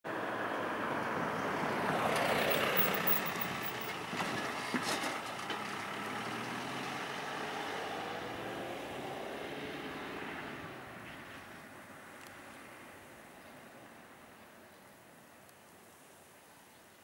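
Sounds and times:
road traffic noise: 0.0s - 17.0s
vehicle passing: 0.1s - 14.1s.

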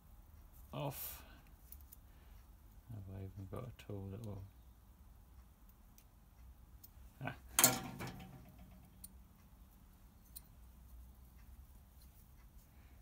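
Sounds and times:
metal tools ticking and clicking: 6.8s - 10.7s.

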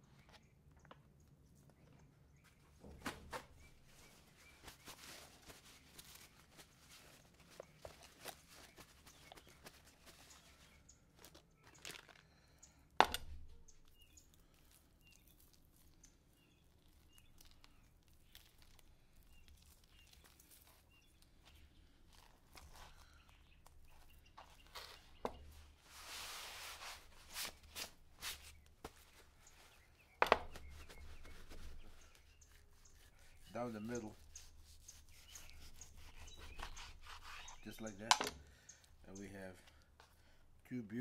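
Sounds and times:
plastic packaging crinkling: 3.7s - 12.5s.

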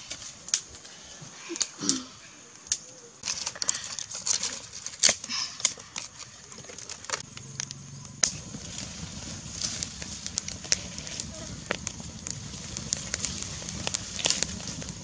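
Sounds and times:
wood fire crackling: 0.0s - 15.0s
sharp pops of fire: 5.0s - 6.1s, 6.8s - 15.0s.

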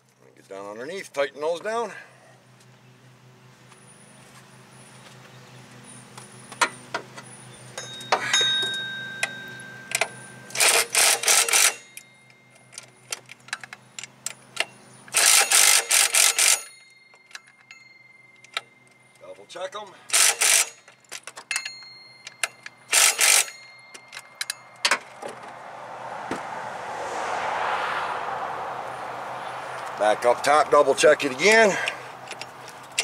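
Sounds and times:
ratchet wrench clicking: 10.5s - 12.0s, 15.1s - 16.7s, 20.1s - 24.6s.

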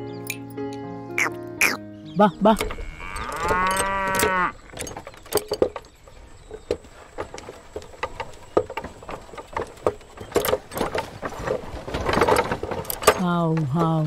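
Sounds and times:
cow mooing: 2.6s - 4.7s.

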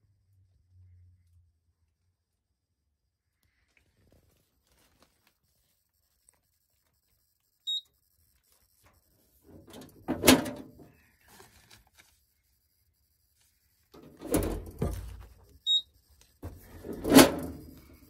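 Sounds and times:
clattering handling noise: 9.6s - 10.8s, 16.4s - 17.6s.

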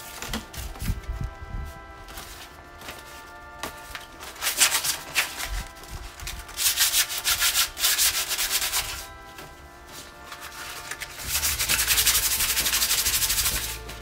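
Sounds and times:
sandpaper rubbing on metal: 4.2s - 9.1s, 10.0s - 14.0s.

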